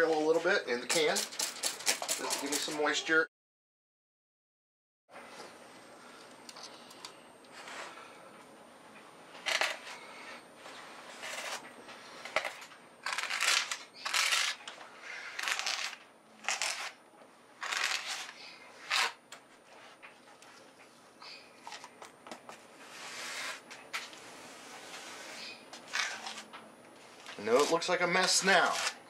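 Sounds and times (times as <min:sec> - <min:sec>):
putty knife scraping board: 0:17.6 - 0:19.2, 0:22.8 - 0:23.7.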